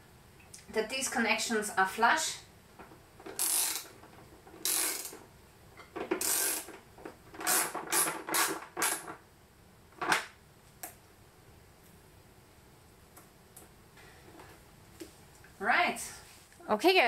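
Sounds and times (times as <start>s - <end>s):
socket ratchet clicking: 3.3s - 3.9s, 4.6s - 5.2s, 6.2s - 6.7s, 7.4s - 9.0s.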